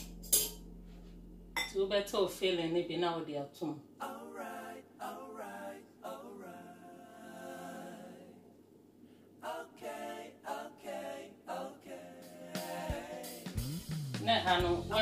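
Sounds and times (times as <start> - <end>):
person singing unaccompanied: 4.0 - 8.3, 9.4 - 15.0.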